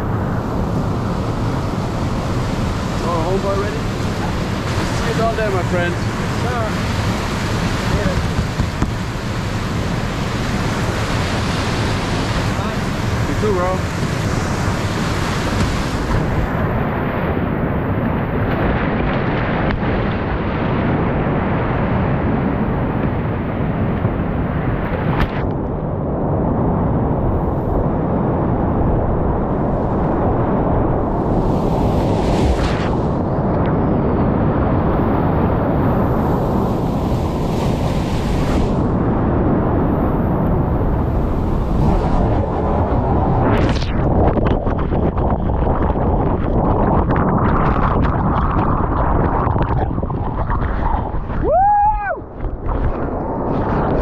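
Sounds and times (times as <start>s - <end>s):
whitewater rushing: 2.3s - 17.0s.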